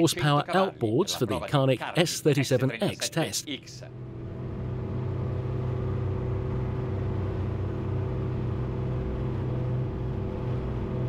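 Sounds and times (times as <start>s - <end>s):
outboard engines running: 3.9s - 11.0s.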